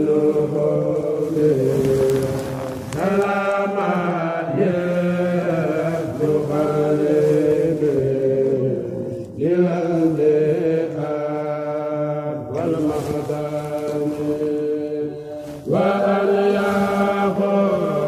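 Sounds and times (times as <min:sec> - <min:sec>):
male voices chanting: 0:00.0 - 0:18.0.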